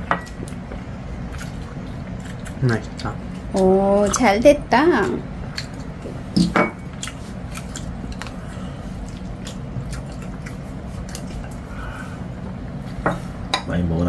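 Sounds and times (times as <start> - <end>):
low steady hum: 0.0 - 14.0
chewing: 1.2 - 4.3, 5.5 - 6.2, 6.8 - 11.7.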